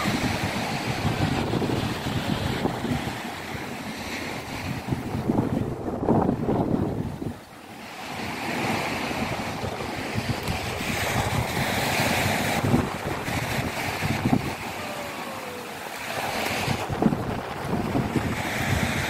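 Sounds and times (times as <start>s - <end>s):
small waves breaking on shore: 0.0s - 19.0s
wind rumbling on microphone: 0.0s - 19.0s.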